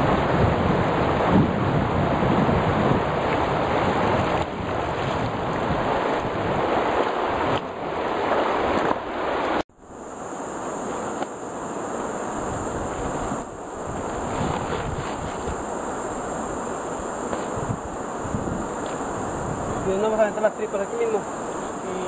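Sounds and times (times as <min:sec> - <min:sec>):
wind on the microphone: 0:00.0 - 0:07.8, 0:12.4 - 0:22.0
rushing river water: 0:00.0 - 0:22.0
water splashing: 0:02.6 - 0:09.6, 0:12.3 - 0:22.0
high-pitched insect buzz: 0:09.8 - 0:22.0.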